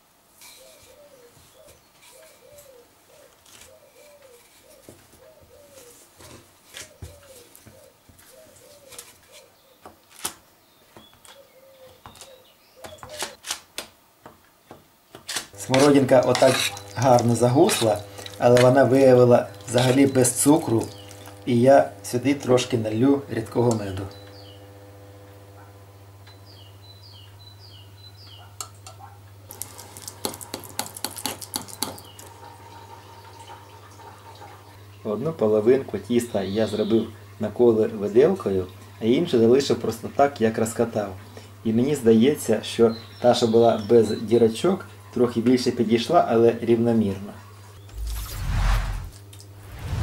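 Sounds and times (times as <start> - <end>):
dove cooing: 0.5 - 6.1, 6.8 - 9.8, 11.4 - 13.4
metal spoon scraping a mesh strainer: 15.6 - 18.9.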